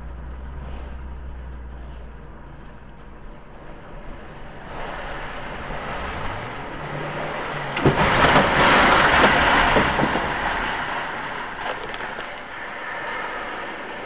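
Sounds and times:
metal sheeting and boards crashing: 7.7s - 12.4s.

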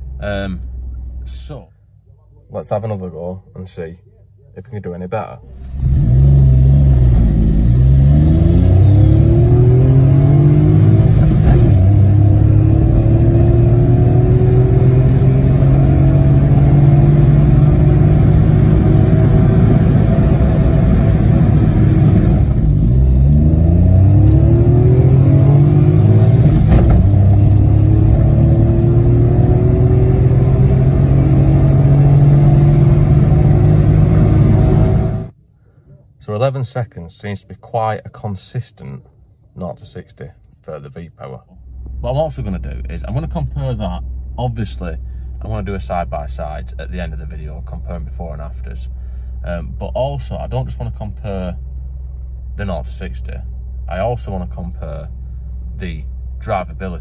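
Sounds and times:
car engine accelerating: 5.5s - 35.3s.

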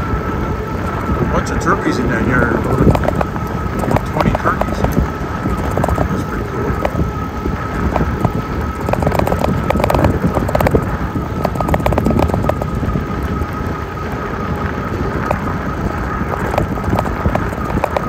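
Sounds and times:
steady high whine: 0.0s - 18.0s
wind buffeting microphone: 0.0s - 18.0s
tyres crunching on gravel: 0.9s - 13.8s
clicks and rattles: 2.6s - 7.0s, 7.7s - 13.5s, 15.1s - 18.0s.

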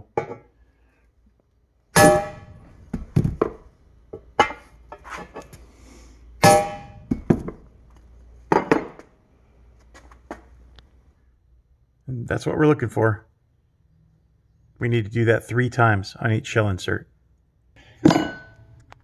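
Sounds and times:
hammer striking steel bar: 2.0s - 2.7s, 6.4s - 7.4s.

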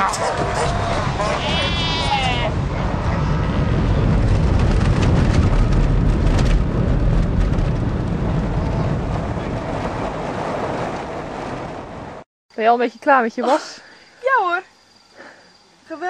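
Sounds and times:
tyres rumbling over gravel: 0.0s - 12.0s
gravel clicks: 0.1s - 10.0s.

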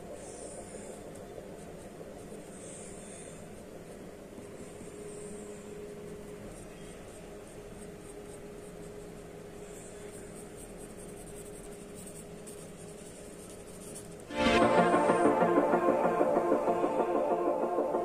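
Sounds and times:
steady low hum: 0.0s - 18.0s
pen scratching on paper: 4.5s - 14.3s.

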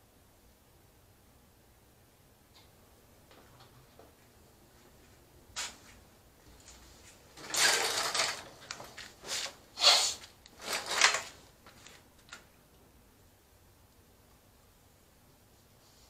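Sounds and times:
rustling and knocking handling noises: 5.0s - 9.6s, 10.3s - 12.5s.

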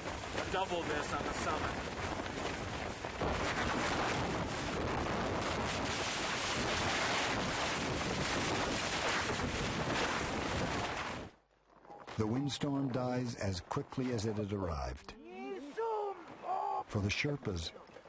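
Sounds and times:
wind noise on microphone: 0.0s - 11.3s
storm wind buffeting a tent: 0.0s - 11.4s
tent fabric flapping: 0.0s - 11.9s.

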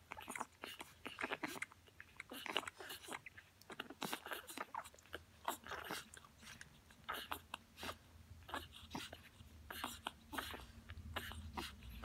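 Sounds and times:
puppies suckling: 0.0s - 12.0s.

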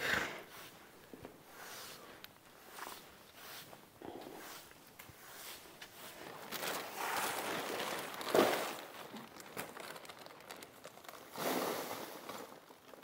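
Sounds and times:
material rustling and crinkling: 0.6s - 13.0s.

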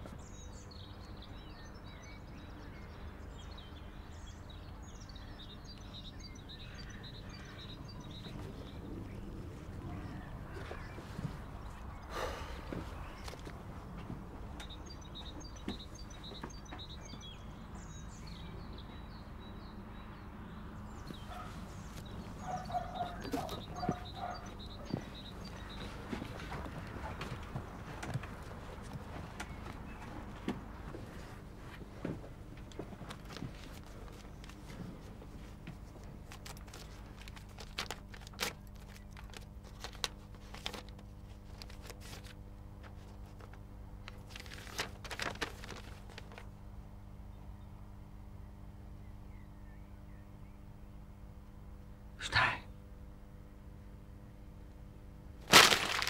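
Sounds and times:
small birds chirping: 0.0s - 46.5s
steady low hum: 0.0s - 56.0s
paper crinkling and tearing: 36.2s - 46.5s, 55.4s - 56.0s.

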